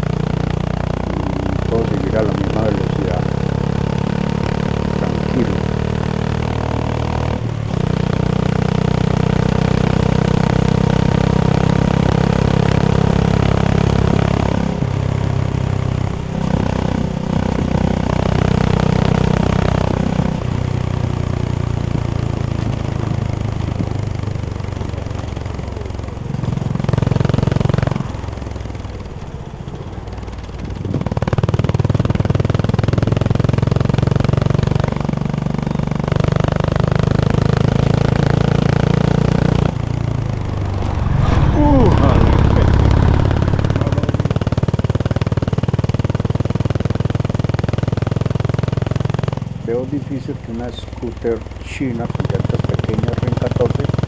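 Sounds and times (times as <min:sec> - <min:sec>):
motorcycle engine and exhaust: 0:00.0 - 0:54.0.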